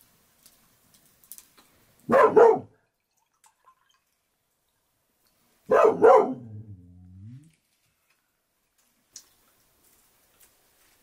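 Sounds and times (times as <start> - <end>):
dog barking: 2.1 - 2.8, 5.7 - 6.7.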